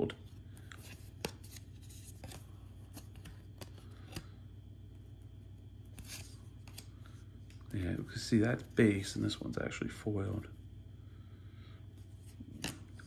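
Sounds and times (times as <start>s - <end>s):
cards rustling in hands: 0.0s - 4.4s, 5.8s - 9.6s.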